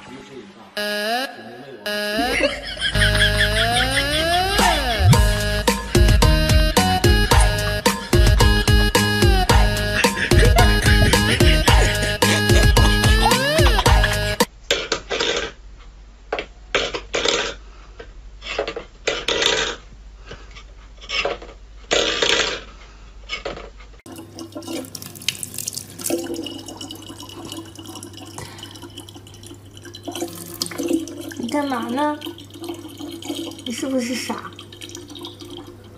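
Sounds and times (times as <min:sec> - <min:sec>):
low hum: 0:02.2 - 0:14.5
kitchen tap running: 0:24.1 - 0:35.9.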